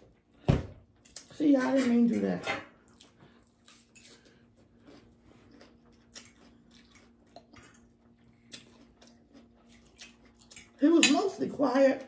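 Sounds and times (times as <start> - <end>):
quiet chewing: 2.8 - 10.8.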